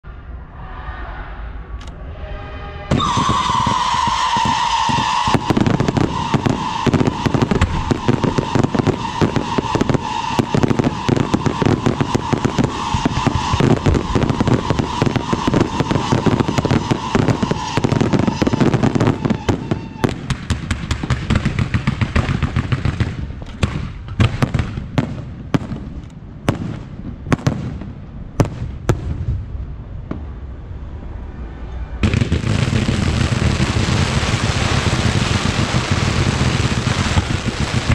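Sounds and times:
steady high tone: 0:00.1 - 0:04.0
fireworks bangs and crackles: 0:02.9 - 0:30.5, 0:32.0 - 0:37.9.

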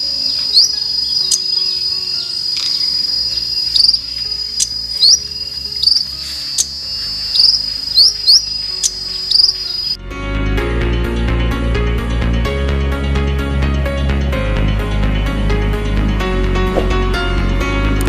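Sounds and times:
insect buzz: 0:00.0 - 0:10.0
songbird chirping: 0:00.0 - 0:10.0.

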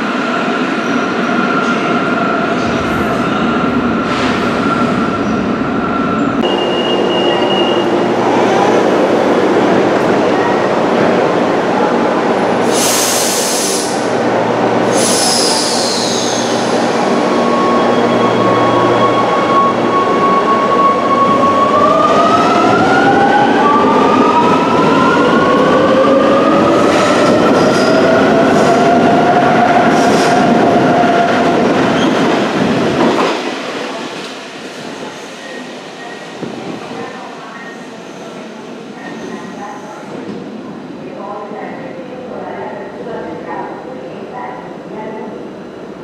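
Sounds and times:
train air hisses: 0:12.6 - 0:14.1, 0:14.9 - 0:16.8.

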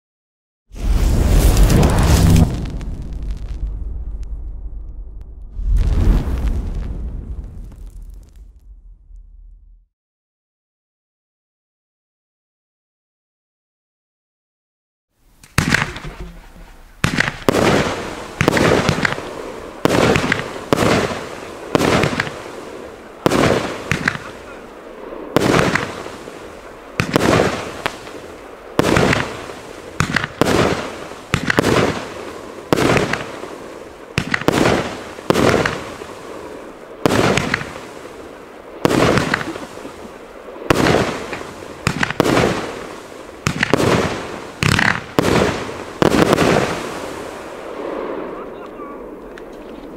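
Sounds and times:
fireworks launch thumps and bangs: 0:15.4 - 0:16.4, 0:17.0 - 0:22.4, 0:23.3 - 0:24.4, 0:25.4 - 0:26.1, 0:27.0 - 0:28.2, 0:28.8 - 0:33.5, 0:34.2 - 0:36.1, 0:37.0 - 0:37.9, 0:38.8 - 0:39.8, 0:40.7 - 0:47.2.

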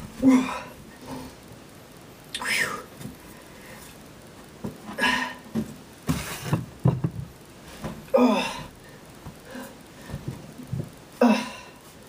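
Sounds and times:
man grunting with strain: 0:00.2 - 0:00.8, 0:08.1 - 0:08.8, 0:11.2 - 0:11.8
noisy breath: 0:02.5 - 0:04.0, 0:08.7 - 0:10.4.

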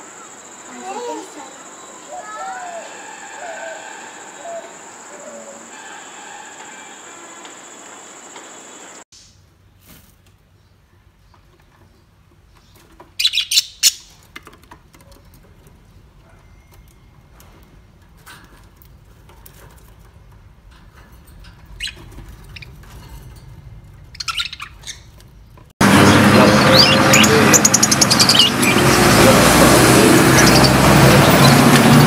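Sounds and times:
budgerigars chirping: 0:24.1 - 0:25.0, 0:25.9 - 0:29.2.

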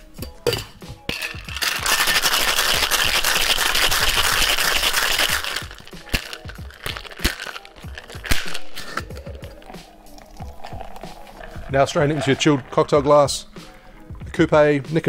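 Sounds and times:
shaker tins knocking together: 0:00.5 - 0:09.6, 0:10.4 - 0:13.0
ice rattling in metal cocktail shaker: 0:01.1 - 0:13.0.

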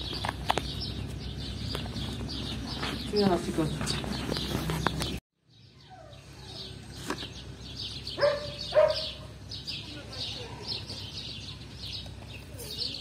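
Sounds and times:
small birds chirping: 0:00.0 - 0:13.0
dog barks: 0:08.2 - 0:09.3.

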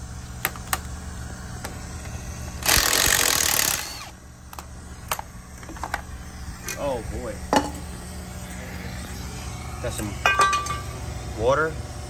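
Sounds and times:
low hum: 0:00.0 - 0:12.0
impact wrench burst: 0:02.6 - 0:04.2.

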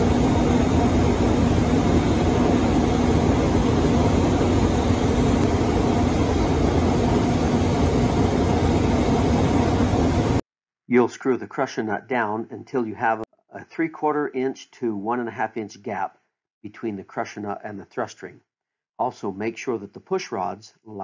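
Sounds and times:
heavy machinery running: 0:00.0 - 0:10.4.

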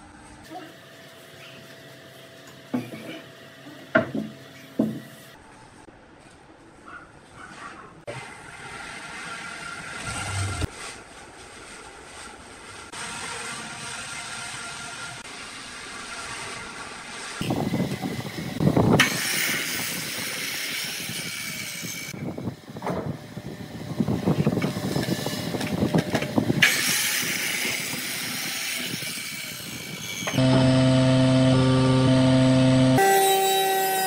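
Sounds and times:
power mitre saw cutting wood: 0:13.0 - 0:22.2, 0:24.4 - 0:34.0
table saw motor humming: 0:23.3 - 0:34.0.

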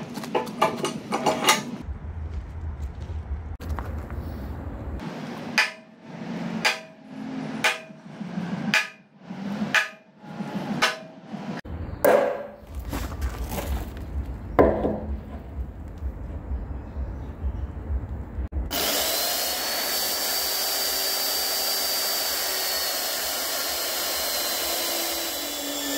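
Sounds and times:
hammer striking punch on steel: 0:05.5 - 0:06.0, 0:06.6 - 0:11.3, 0:12.0 - 0:12.6.

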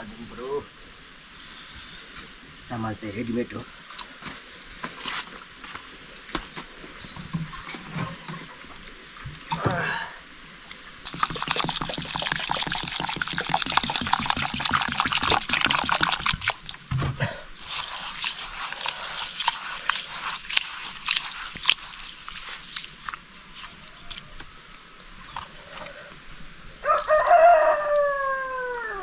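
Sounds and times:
liquid pouring and splashing: 0:11.0 - 0:16.9, 0:17.6 - 0:24.5
rooster crowing: 0:26.8 - 0:29.0.

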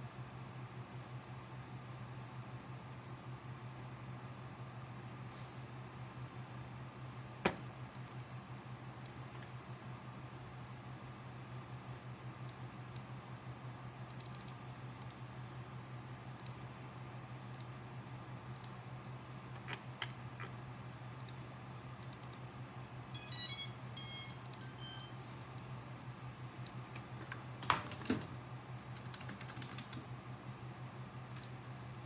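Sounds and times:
mouse clicks: 0:14.1 - 0:15.2.

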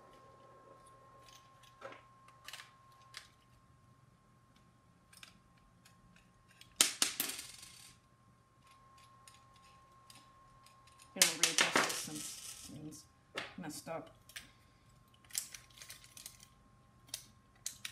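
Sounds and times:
rattling clatter of parts: 0:15.1 - 0:16.6.

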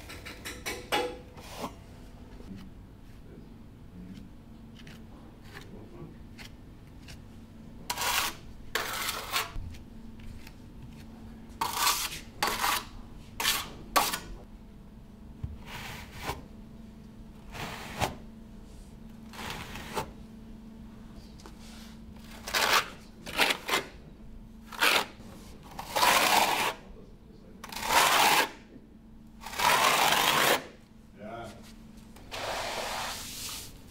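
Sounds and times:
faint steady hum: 0:00.0 - 0:33.9
trowel scraping mortar: 0:07.9 - 0:09.6, 0:11.6 - 0:14.2, 0:25.8 - 0:26.8, 0:27.6 - 0:28.6, 0:29.4 - 0:30.7.

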